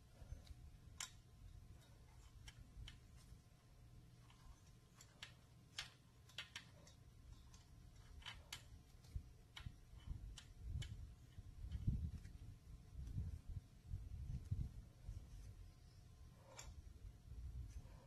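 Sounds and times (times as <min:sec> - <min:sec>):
metal parts clicking and tapping: 0:00.2 - 0:03.4, 0:04.2 - 0:12.4.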